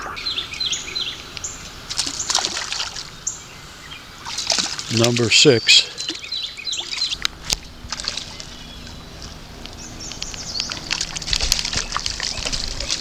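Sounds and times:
creek water washing: 0.0 - 13.0
fish splashing at surface: 1.9 - 3.1, 4.2 - 4.9, 6.8 - 8.6, 10.7 - 13.0.

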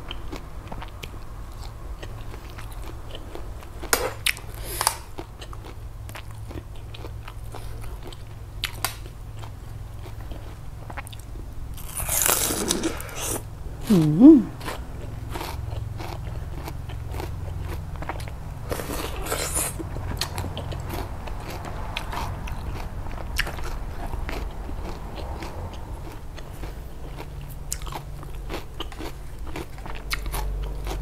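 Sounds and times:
chewing crisp crunches: 0.0 - 13.5, 14.5 - 31.0
wet mouth sounds: 12.0 - 14.8, 18.6 - 20.3.

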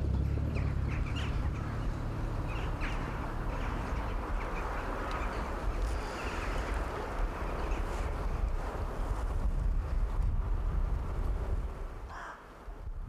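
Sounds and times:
rushing outdoor background: 0.0 - 13.0
bird calls: 0.1 - 8.5.

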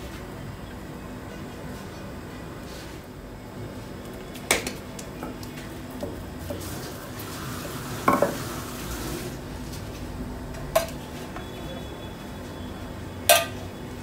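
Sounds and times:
utensil clinking on metal tray: 13.3 - 13.6.

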